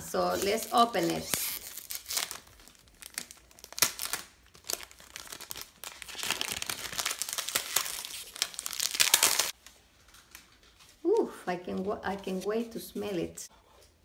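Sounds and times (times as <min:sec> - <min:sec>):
cellophane wrap crinkling: 0:00.1 - 0:11.1.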